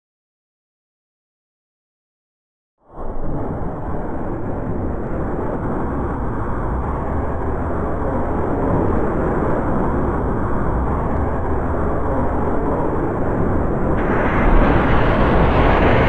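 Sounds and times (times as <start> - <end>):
muffled rocket motor roar: 14.0 - 16.0.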